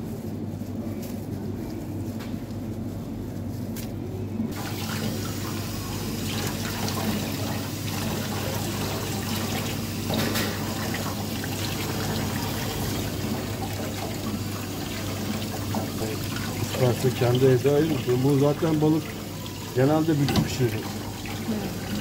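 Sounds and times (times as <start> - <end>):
splashing as fish is rinsed: 4.5 - 22.0
tap water running into sink: 4.5 - 22.0.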